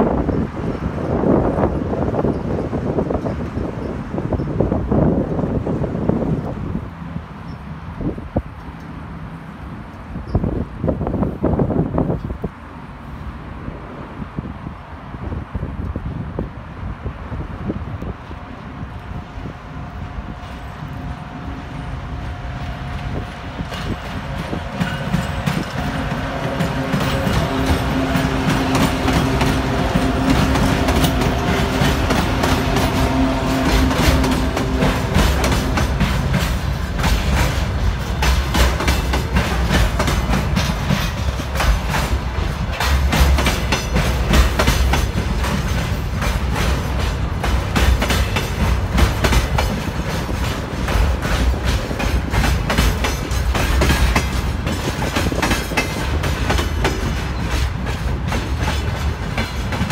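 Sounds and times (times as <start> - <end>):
diesel locomotive engine droning: 0.0 - 59.9
train wagons rumbling: 0.0 - 59.9
wheels clacking over rail joints: 20.0 - 59.9.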